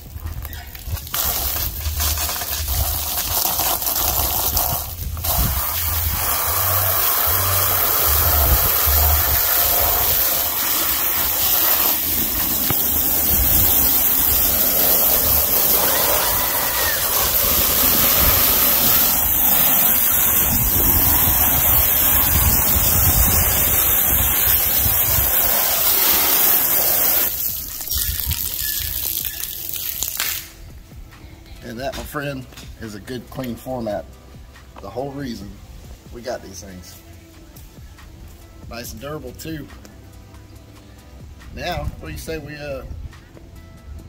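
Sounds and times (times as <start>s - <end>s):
water jet spraying mats: 0.7s - 30.6s.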